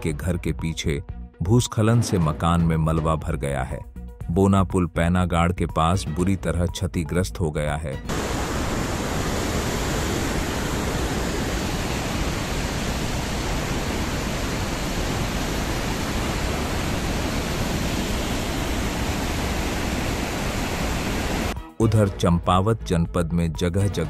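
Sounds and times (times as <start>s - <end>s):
floodwater rushing: 8.1s - 21.6s.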